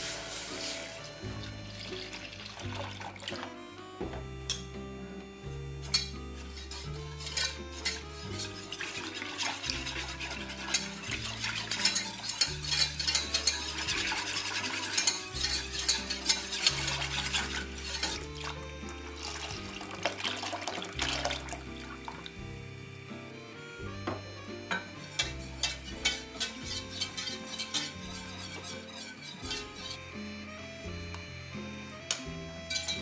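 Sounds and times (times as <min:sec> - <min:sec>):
whisk scraping a saucepan: 0:00.0 - 0:01.2, 0:05.8 - 0:22.3, 0:24.7 - 0:30.2, 0:32.7 - 0:33.0
soft background music: 0:00.0 - 0:33.0.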